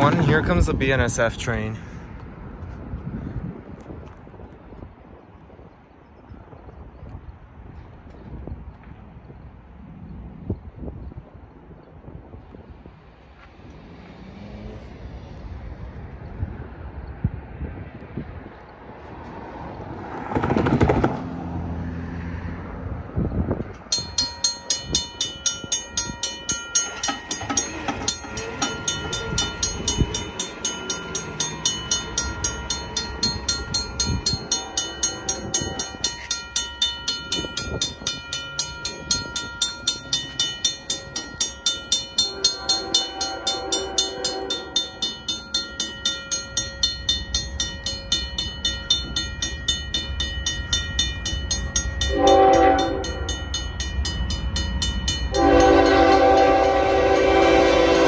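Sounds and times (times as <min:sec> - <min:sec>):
railroad crossing bell ringing: 0:23.7 - 0:58.0
distant locomotive horn: 0:42.2 - 0:45.0, 0:52.0 - 0:53.4, 0:55.3 - 0:58.0.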